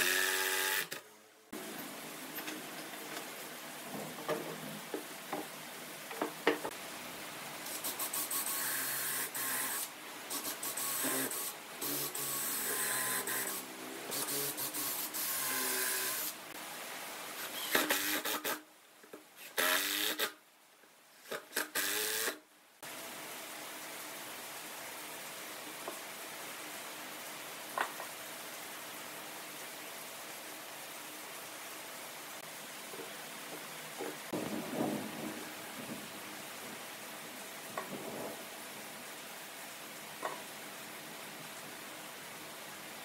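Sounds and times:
power tool motor whine: 0.0s - 1.0s, 8.2s - 16.4s.

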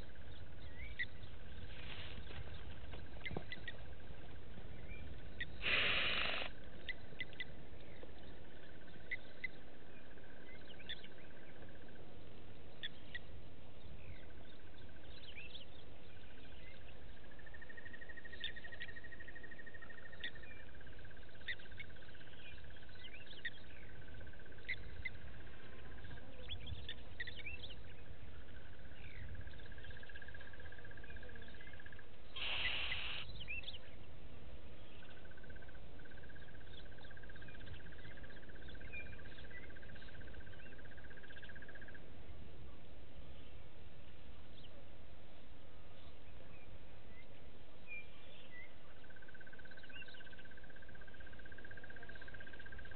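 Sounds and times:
bird chirps: 0.0s - 34.2s, 34.8s - 44.8s, 46.0s - 52.9s
brief hissing sound: 5.6s - 6.5s, 32.4s - 33.2s.

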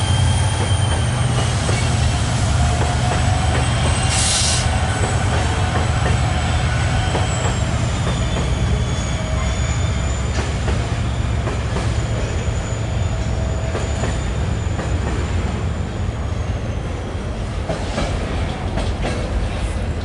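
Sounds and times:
high wheel squeal: 0.0s - 17.2s
freight train rumbling: 0.0s - 20.0s
wheels clacking over rail joints: 17.6s - 20.0s.

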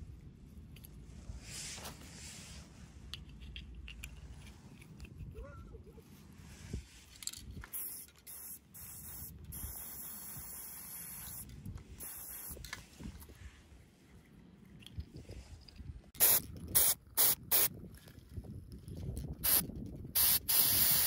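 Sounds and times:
faint aerosol spray hiss: 7.8s - 11.4s, 12.0s - 12.6s, 20.2s - 21.0s.

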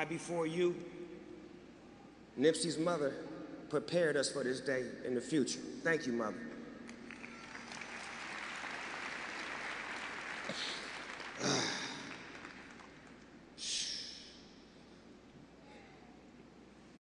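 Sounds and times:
crowd applauding: 6.9s - 13.3s.

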